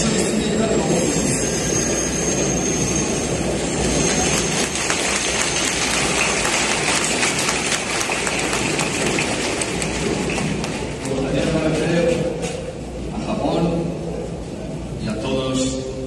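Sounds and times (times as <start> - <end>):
stadium crowd applauding: 3.7 - 11.3.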